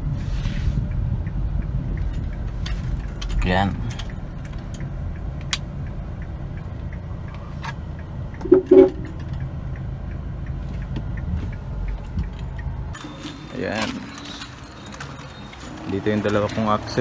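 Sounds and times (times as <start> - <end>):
short beeps: 8.4 - 9.1.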